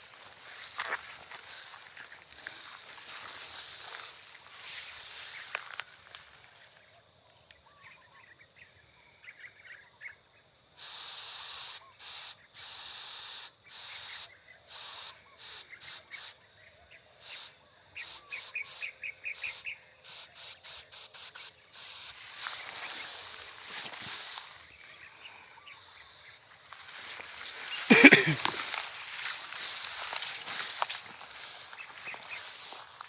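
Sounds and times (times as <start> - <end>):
insect chirps: 0.0 - 33.0
insects trilling: 0.0 - 33.0
pressure sprayer hissing: 2.4 - 4.2, 17.3 - 24.6, 27.5 - 33.0.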